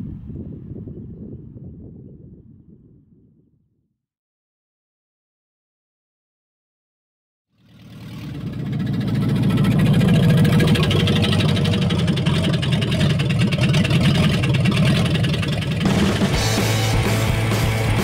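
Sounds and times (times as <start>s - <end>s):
car engine running: 7.6s - 18.0s.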